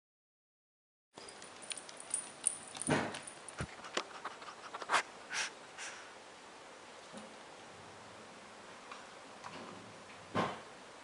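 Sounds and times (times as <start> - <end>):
dog claws clicking on wood floor: 1.2 - 4.8
dog snorting and sniffing: 3.6 - 6.1.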